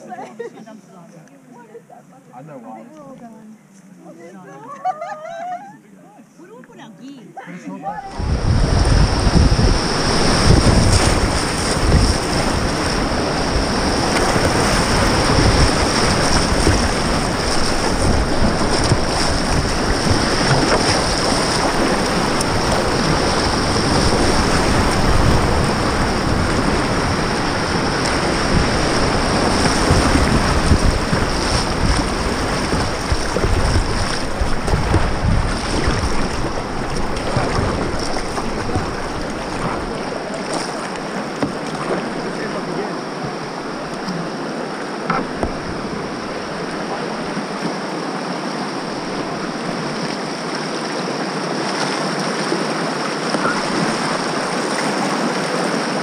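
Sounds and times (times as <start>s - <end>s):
whitewater rushing: 7.8s - 56.0s
water splashing against hull: 7.9s - 56.0s
wind buffeting microphone: 8.0s - 42.5s
paddle strokes: 8.0s - 56.0s.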